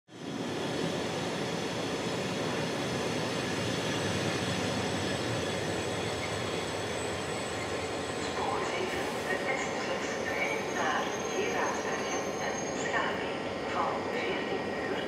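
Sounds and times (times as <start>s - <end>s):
train running on rails: 0.1s - 15.0s.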